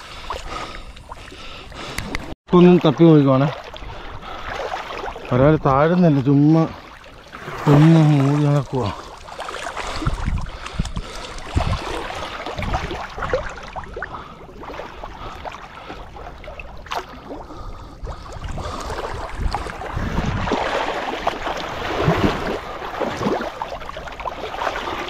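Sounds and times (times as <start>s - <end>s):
water splashing and sloshing: 0.0s - 25.0s
wind on microphone: 9.8s - 14.0s, 17.5s - 23.4s.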